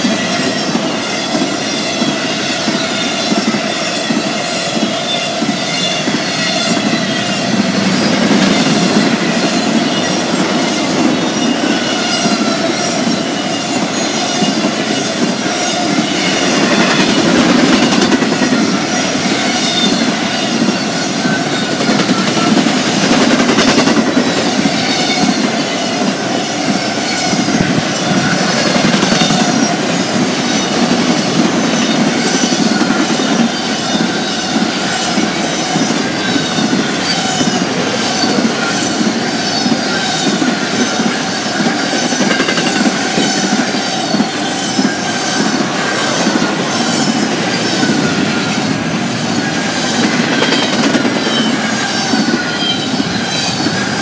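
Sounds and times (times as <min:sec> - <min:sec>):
high-pitched wheel squeals: 0:00.0 - 0:54.0
train wheels rumbling on rail: 0:00.0 - 0:54.0.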